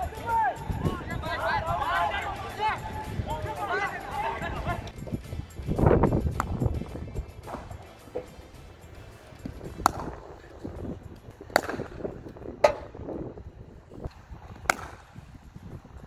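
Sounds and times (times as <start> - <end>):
cricket bat striking ball: 9.7 - 10.2, 11.5 - 12.0, 12.6 - 13.0, 14.6 - 15.2.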